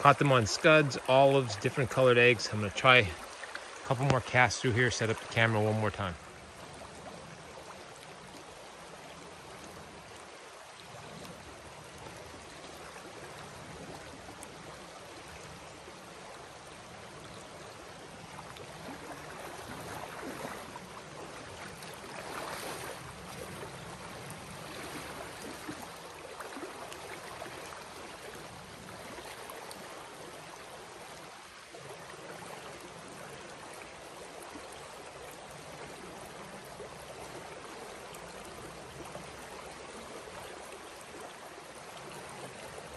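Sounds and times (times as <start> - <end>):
creek rushing over riffles: 0.0 - 6.4
water splashing: 0.0 - 42.9.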